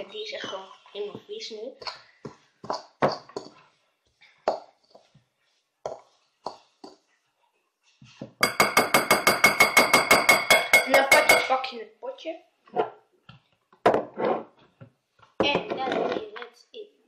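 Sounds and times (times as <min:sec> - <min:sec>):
metal utensil clinking glass bowl: 0:08.4 - 0:11.6.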